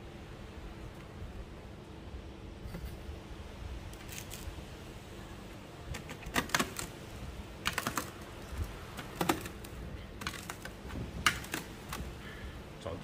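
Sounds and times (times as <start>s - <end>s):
hard objects clicking and tapping: 9.0s - 12.1s.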